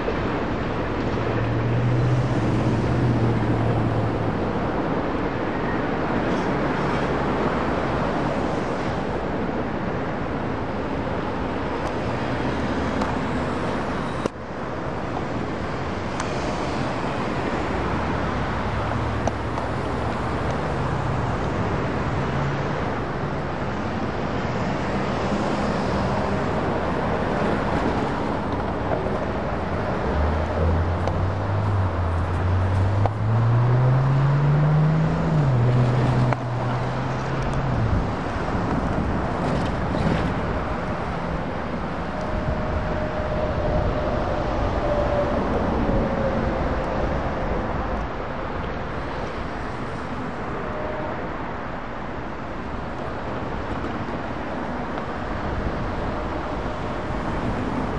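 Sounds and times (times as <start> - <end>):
road traffic noise: 0.0 - 57.9
vehicles driving over railroad crossing: 0.0 - 57.9
car engine accelerating away: 30.1 - 37.8.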